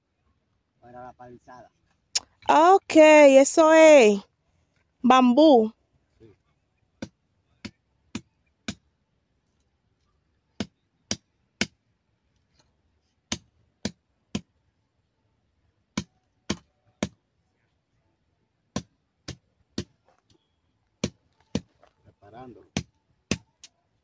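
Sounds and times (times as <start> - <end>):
sharp knocks on bamboo pole: 13.3 - 14.5.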